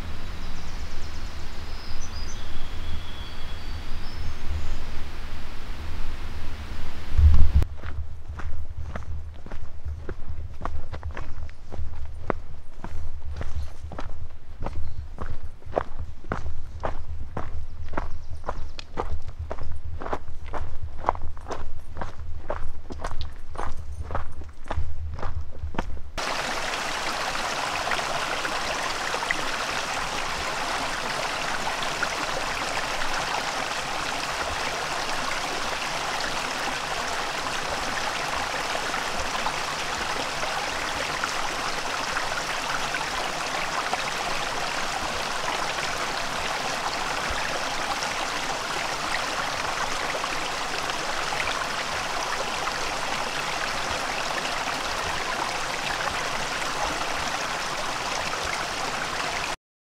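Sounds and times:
stream flowing over rocks: 26.2 - 59.6.

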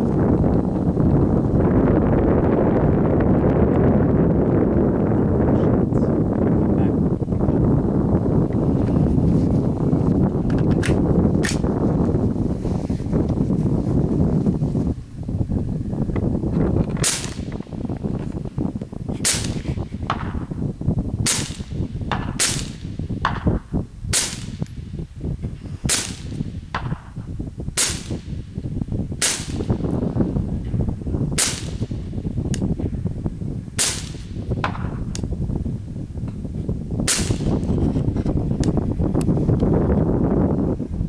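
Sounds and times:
suppressed rifle shots: 17.0 - 17.6, 19.2 - 20.5, 21.2 - 24.7, 25.9 - 27.2, 27.8 - 28.4, 29.2 - 29.9, 31.4 - 32.0, 33.8 - 35.0, 37.1 - 37.7.

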